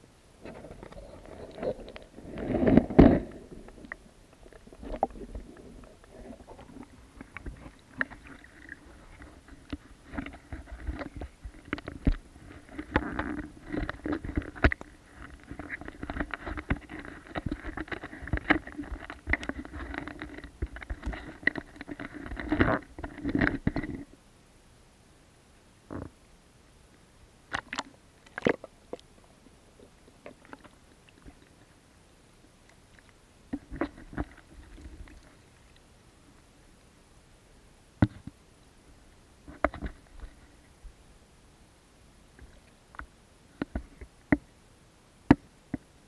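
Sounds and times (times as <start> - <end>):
water sloshing and splashing: 0.5 - 23.5.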